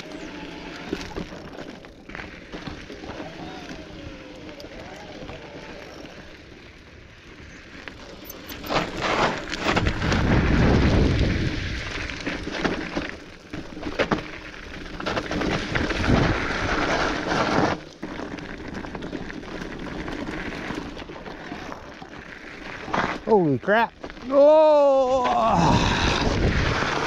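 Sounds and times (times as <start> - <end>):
bike knocking and rattling: 0.0 - 6.6, 7.4 - 24.3
bike tyres crunching: 0.0 - 27.0
wind rumbling on microphone: 8.6 - 13.1, 14.8 - 22.0, 24.9 - 27.0.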